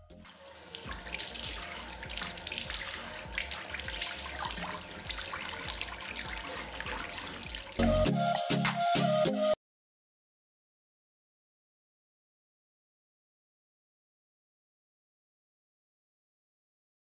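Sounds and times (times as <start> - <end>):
loud music: 0.0 - 9.6
tap water splashing over hands: 0.2 - 8.0.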